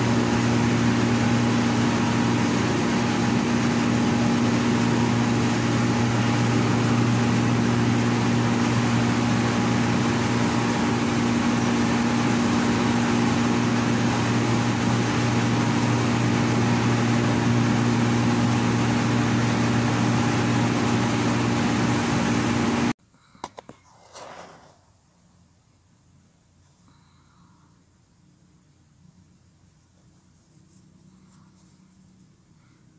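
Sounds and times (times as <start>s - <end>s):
mill machinery droning: 0.0s - 23.0s.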